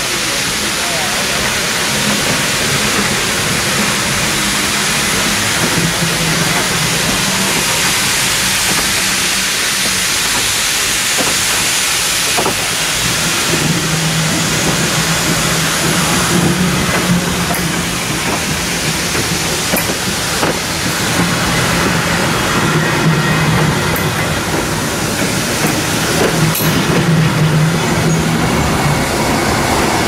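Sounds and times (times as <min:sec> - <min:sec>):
steam locomotive hissing steam: 0:00.0 - 0:30.0
faint clicks of rolling coaches: 0:15.8 - 0:22.0, 0:23.5 - 0:27.2.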